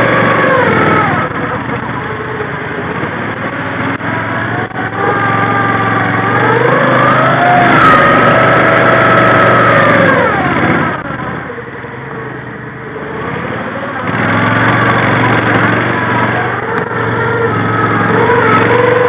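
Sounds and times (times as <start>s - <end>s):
vehicle engine revving: 0.0s - 19.0s.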